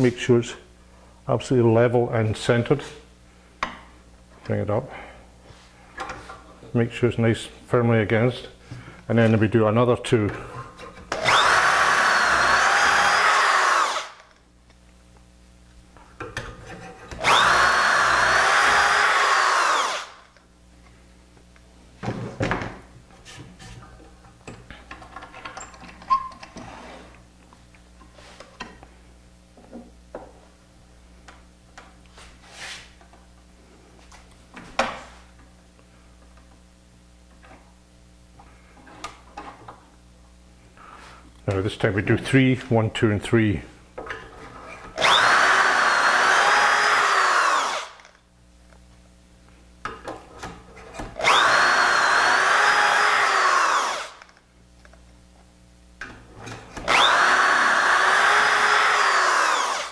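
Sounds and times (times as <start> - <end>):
electric drill boring into wood: 11.1 - 14.3, 17.2 - 20.3, 45.0 - 48.2, 51.2 - 54.4, 56.8 - 59.9.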